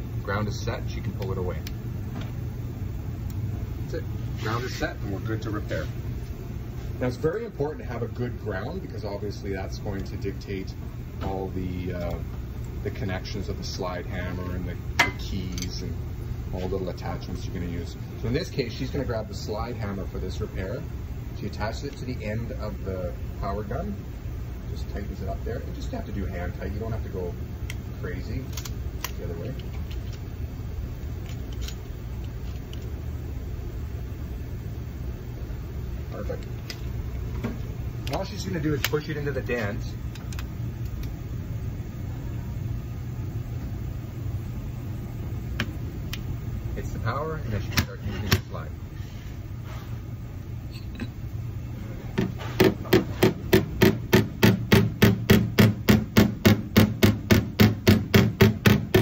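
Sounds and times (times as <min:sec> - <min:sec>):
low steady hum: 0:00.0 - 0:59.0
hammer tapping metal panel: 0:52.2 - 0:59.0.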